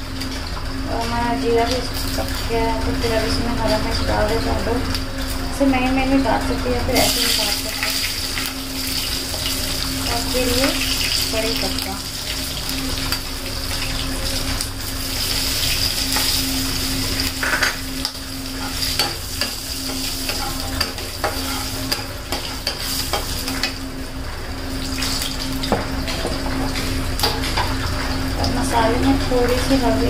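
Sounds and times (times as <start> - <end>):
leaves and spices sizzling in oil: 0.0 - 30.0
steady hum: 0.0 - 30.0
spatula scraping and tapping pan: 17.3 - 23.8.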